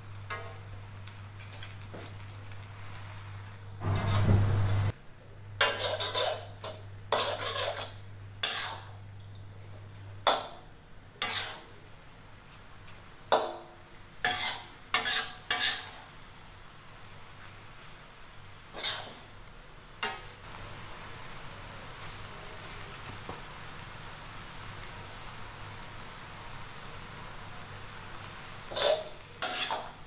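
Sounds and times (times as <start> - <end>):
metal spatula scraping a wok: 0.3 - 0.6, 1.4 - 4.7, 5.6 - 9.0, 11.2 - 11.7, 14.2 - 16.1, 18.7 - 19.3, 28.4 - 30.0.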